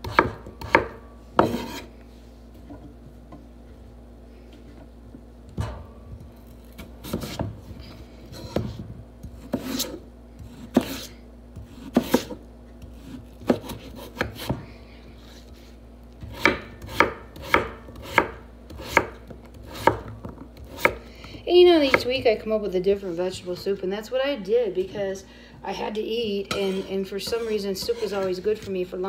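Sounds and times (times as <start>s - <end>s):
knife chopping on wooden board: 0.0s - 1.9s, 8.3s - 14.6s, 16.2s - 21.0s.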